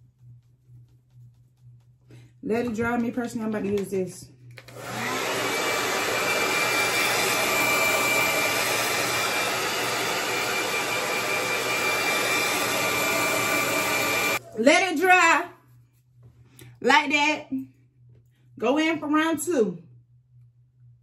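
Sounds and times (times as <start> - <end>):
hair dryer blowing: 4.6 - 14.4.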